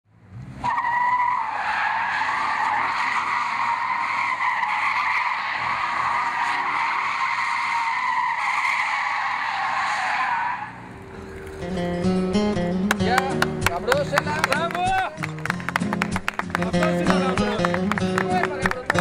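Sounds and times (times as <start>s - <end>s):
tyres squealing: 0.6s - 12.2s.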